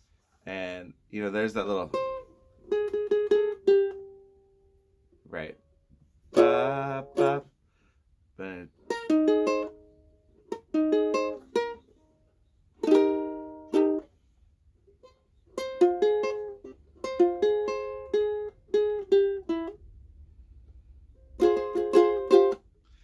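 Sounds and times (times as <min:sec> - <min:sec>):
ukulele strumming: 0:01.2 - 0:05.0, 0:06.0 - 0:07.6, 0:08.8 - 0:12.1, 0:12.7 - 0:14.2, 0:14.9 - 0:20.2, 0:21.1 - 0:23.0.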